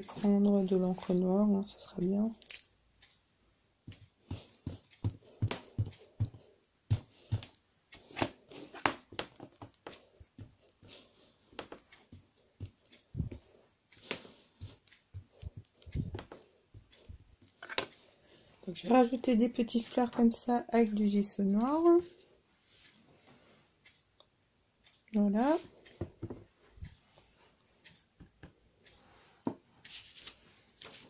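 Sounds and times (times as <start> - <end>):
foam tool tapping on paper: 3.8 - 7.6, 8.2 - 17.0.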